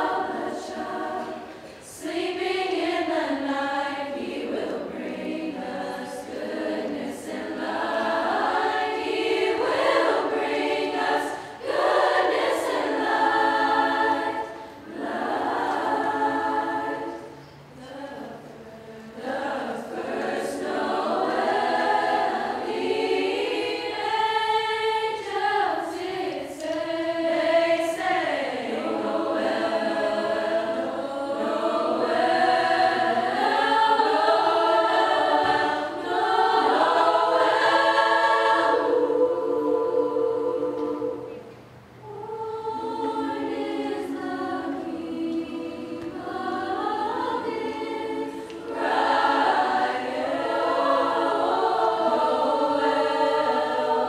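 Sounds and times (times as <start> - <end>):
choir singing: 0.0 - 54.0.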